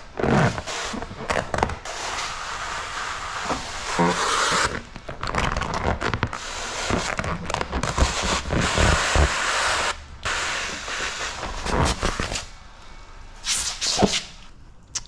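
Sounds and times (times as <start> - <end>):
sprayer hissing: 8.0 - 12.0.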